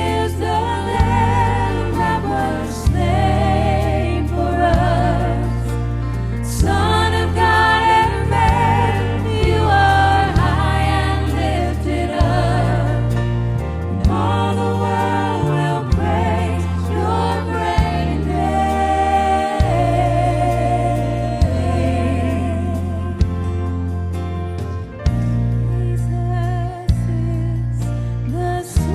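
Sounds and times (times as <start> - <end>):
backing singers: 0.0 - 5.7, 6.4 - 13.2, 13.9 - 23.2
band with bass and drums: 0.0 - 28.9.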